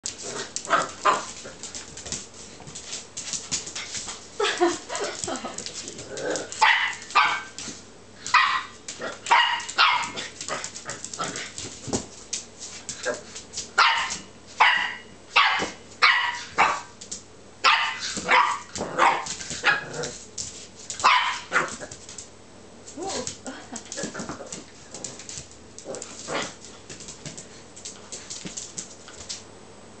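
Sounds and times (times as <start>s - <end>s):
puppy barking and yipping: 6.6s - 7.6s, 8.3s - 10.3s, 13.8s - 16.9s, 17.6s - 19.9s, 21.0s - 21.8s.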